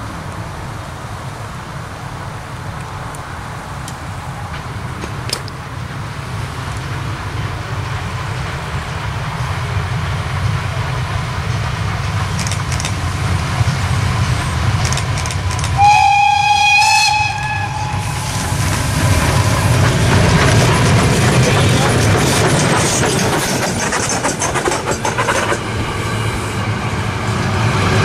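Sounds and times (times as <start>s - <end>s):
steam locomotive rumbling: 0.0s - 28.0s
steam whistle blast: 15.8s - 18.7s.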